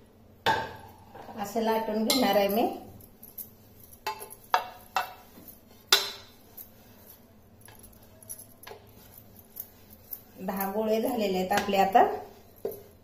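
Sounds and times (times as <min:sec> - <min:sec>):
metal rolling pin clinking on board: 0:02.0 - 0:02.8, 0:03.9 - 0:06.8, 0:07.7 - 0:13.0.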